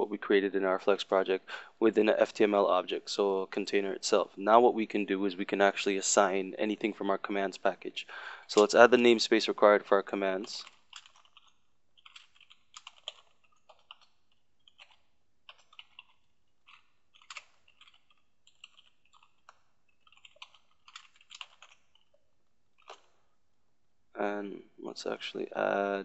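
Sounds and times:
faint keyboard typing: 8.5s - 22.2s.

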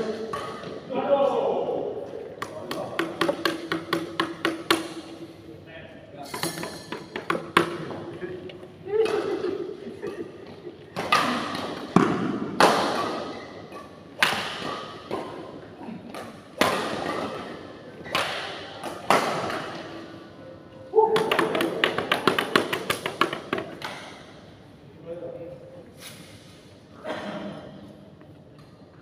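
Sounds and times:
badminton racket hitting shuttlecock: 11.0s - 15.4s.

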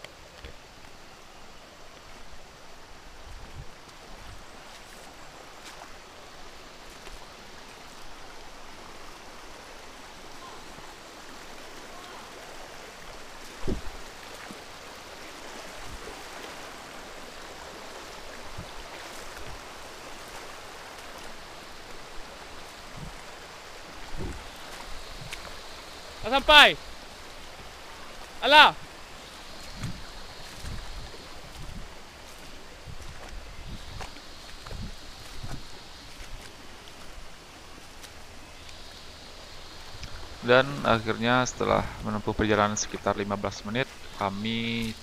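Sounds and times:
stream running over rocks: 0.0s - 45.0s.

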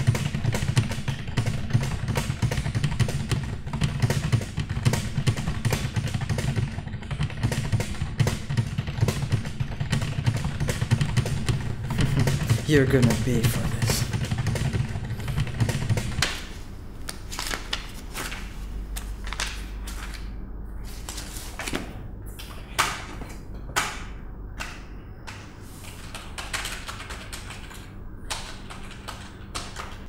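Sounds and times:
typing on a computer keyboard: 0.0s - 16.4s, 23.8s - 30.0s.

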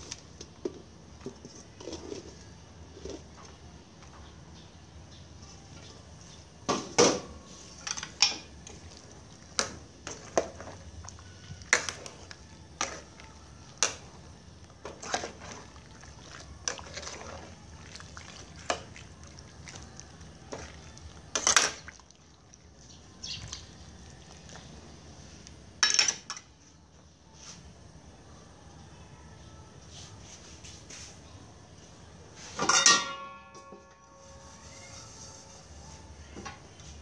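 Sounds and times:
liquid sloshing: 14.7s - 24.7s
ladle clinking against pot: 32.6s - 34.0s.

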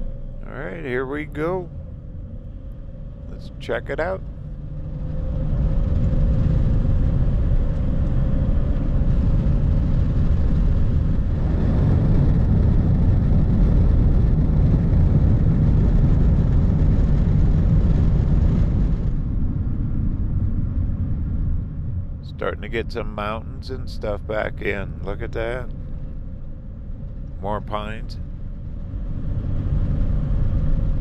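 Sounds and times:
faint steady hum: 0.0s - 31.0s
road and wind noise: 0.0s - 31.0s.

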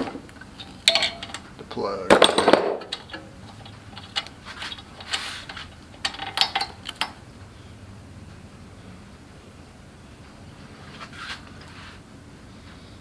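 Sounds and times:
hand tool clicking and scraping: 0.3s - 1.5s, 2.8s - 7.2s.

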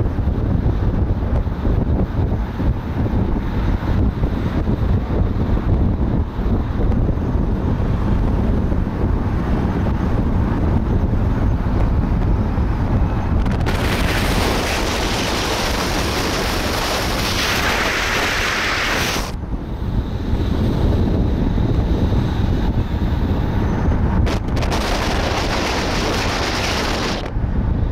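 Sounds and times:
car engine and tyres rumbling: 0.0s - 27.9s
wind noise on microphone: 0.0s - 27.9s
rushing air hiss: 13.8s - 19.4s.

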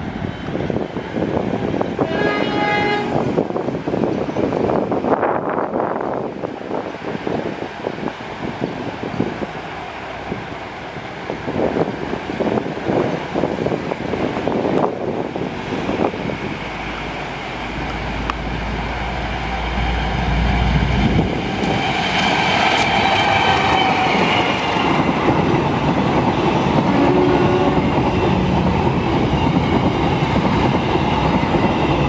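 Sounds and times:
train wheels on rails: 0.0s - 32.0s
locomotive engine rumble: 14.2s - 32.0s.

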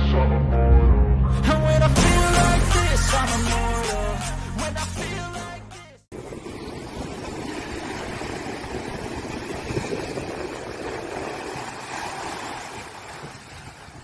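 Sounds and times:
small waves breaking on sand: 6.2s - 14.0s.

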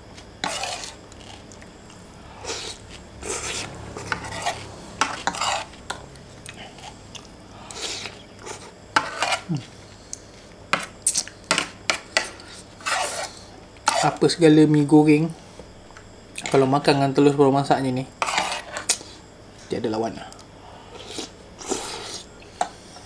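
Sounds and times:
cutlery scraping a ceramic plate: 0.4s - 1.3s, 2.4s - 6.0s, 7.9s - 9.5s, 11.5s - 13.3s, 13.9s - 14.2s, 18.2s - 19.1s.

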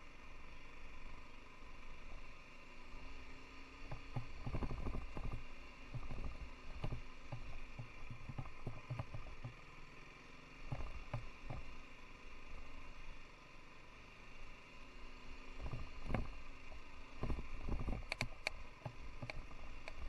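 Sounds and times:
motorcycle engine running: 3.8s - 9.6s, 10.7s - 11.7s, 15.6s - 20.0s
motorcycle knocks and rattles: 3.9s - 9.6s, 10.7s - 11.7s, 15.6s - 16.4s, 17.2s - 20.0s.

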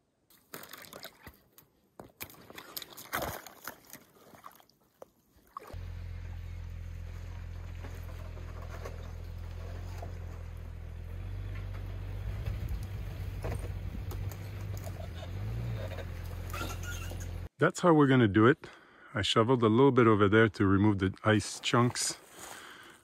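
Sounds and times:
rubber boots splashing in water: 0.3s - 5.8s.

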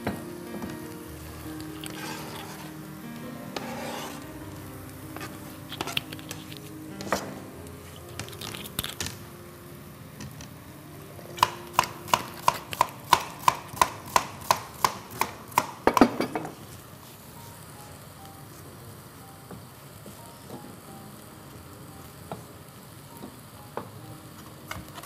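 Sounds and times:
knife chopping on cutting board: 11.4s - 16.3s.

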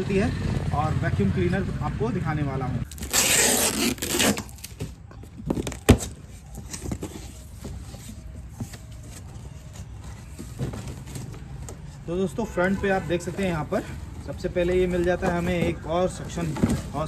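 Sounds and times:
packing tape tearing: 2.9s - 4.9s
cardboard flaps rustling: 3.3s - 11.9s, 14.7s - 17.0s.

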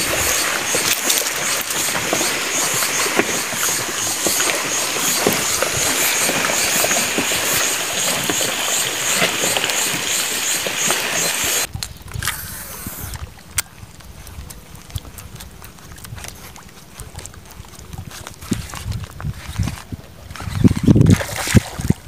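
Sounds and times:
oil popping and crackling: 0.0s - 12.4s.

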